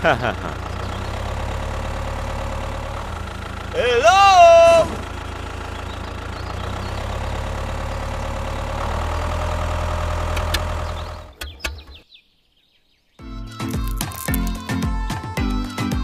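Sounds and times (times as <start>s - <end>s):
tractor engine idling: 0.0s - 11.4s.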